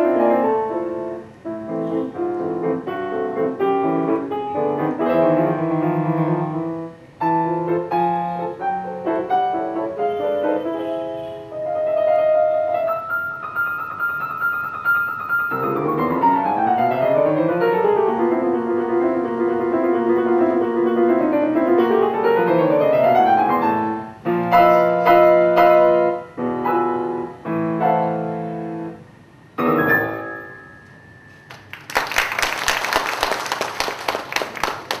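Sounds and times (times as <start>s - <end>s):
grand piano played fast: 0.0s - 29.0s, 29.6s - 32.5s
audience applause: 31.5s - 35.0s.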